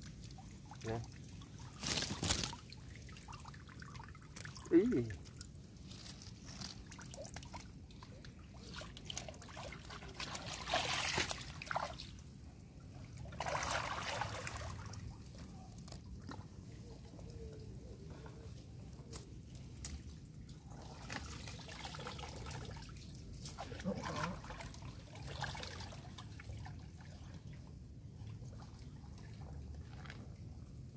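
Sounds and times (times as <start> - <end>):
swishes of disturbed water: 0.0 - 12.3, 12.9 - 15.3, 20.4 - 30.0
creek water sloshing: 0.0 - 17.2, 19.9 - 30.8.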